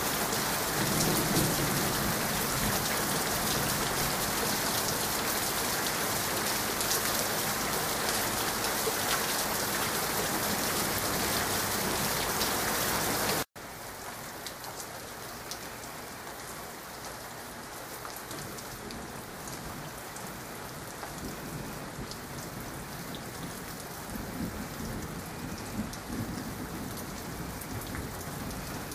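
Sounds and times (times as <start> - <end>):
steady rain falling: 0.0 - 28.9
distant thunder rumble: 0.6 - 4.8, 21.2 - 28.9.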